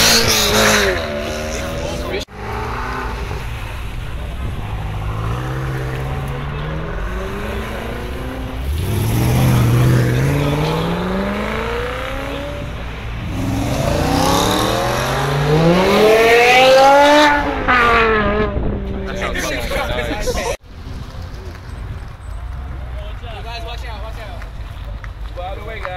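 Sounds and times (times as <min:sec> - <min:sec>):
car engines accelerating hard: 0:00.0 - 0:23.6.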